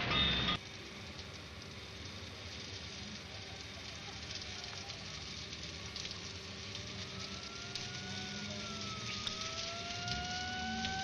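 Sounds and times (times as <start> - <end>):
water spraying onto wet road: 0.0 - 11.0.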